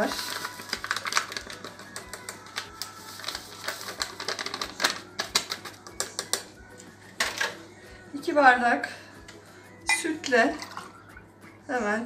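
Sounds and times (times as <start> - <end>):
paper sachet crinkling: 0.0 - 5.9
light clicks of sachet tapping: 0.4 - 6.5.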